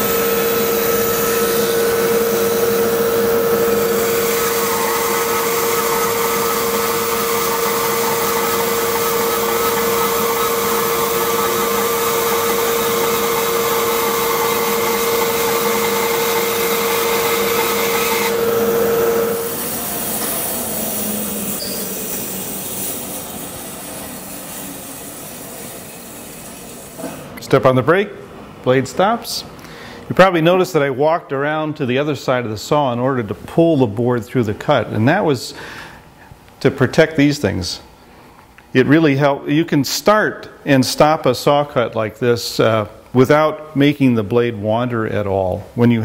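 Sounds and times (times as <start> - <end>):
bandsaw cutting wood: 0.0 - 25.1
dust collector running: 0.0 - 27.1.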